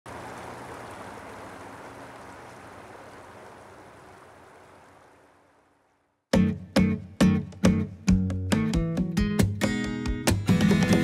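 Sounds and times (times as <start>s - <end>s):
river water rushing over stones: 0.1s - 5.8s.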